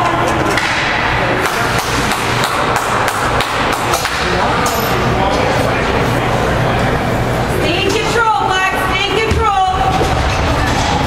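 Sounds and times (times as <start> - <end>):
hockey sticks and puck clacking: 0.0 - 5.0.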